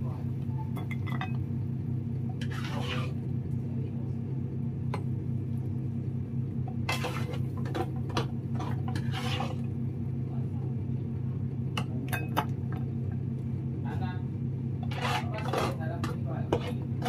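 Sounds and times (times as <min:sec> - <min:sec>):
steady low hum: 0:00.0 - 0:17.0
pan scraping against bowl: 0:02.4 - 0:03.2, 0:06.8 - 0:09.7, 0:14.8 - 0:17.0.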